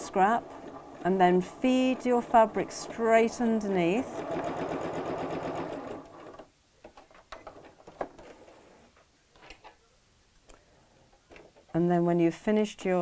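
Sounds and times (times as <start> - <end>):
electric sewing machine stitching: 0.0 - 6.5.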